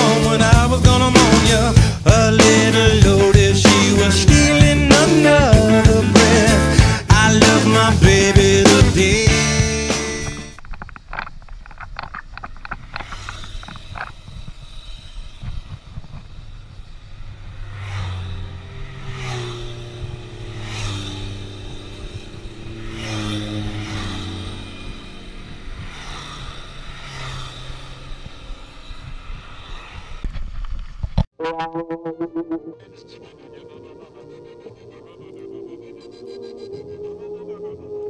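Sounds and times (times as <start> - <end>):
bicycle road rumble: 0.0 - 31.4
wind: 9.0 - 31.3
motorcycle passing: 12.0 - 38.0.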